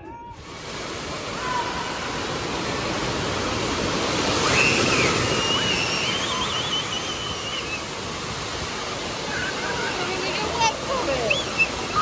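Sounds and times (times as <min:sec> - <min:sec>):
fountain jets rushing water: 0:00.1 - 0:12.0
distant children squealing: 0:04.4 - 0:07.8.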